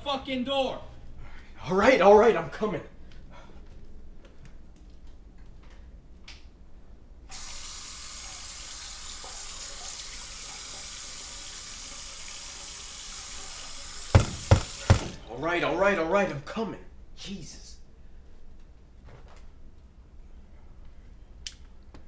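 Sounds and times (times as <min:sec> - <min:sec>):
tap water running into sink: 0:07.3 - 0:15.3.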